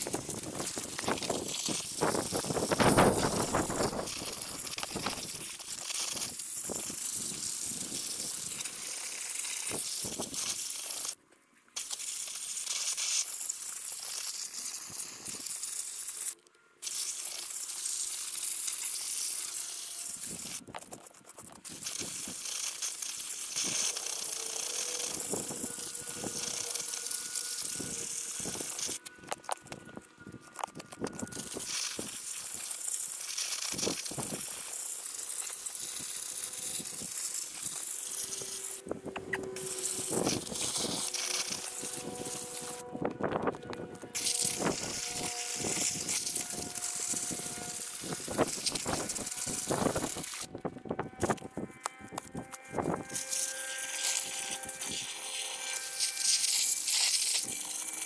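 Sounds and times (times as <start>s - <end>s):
shovel digging in soil: 0.0s - 11.2s.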